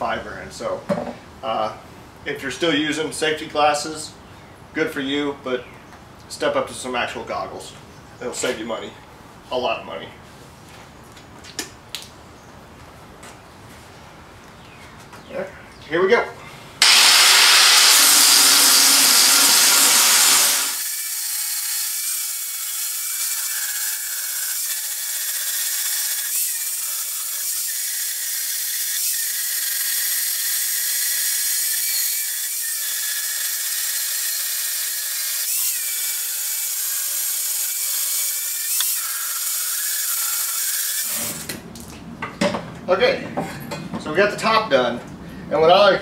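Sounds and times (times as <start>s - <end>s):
grinder grinding metal: 16.8s - 41.5s.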